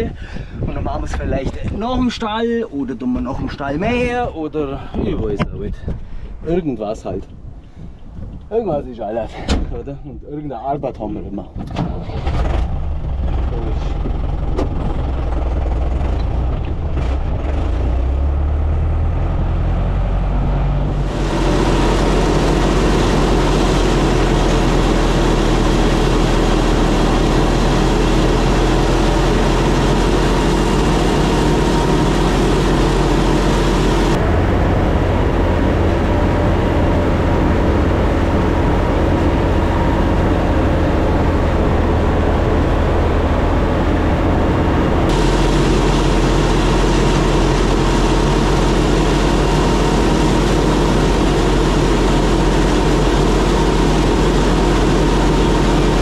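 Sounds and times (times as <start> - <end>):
tractor engine running: 11.8 - 56.0.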